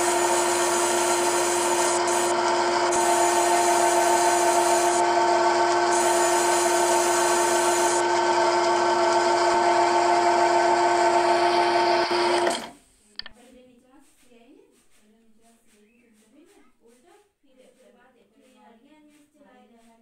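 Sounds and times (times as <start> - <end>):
high hiss of tool cutting: 0.0 - 8.2
lathe machine whine: 0.0 - 12.7.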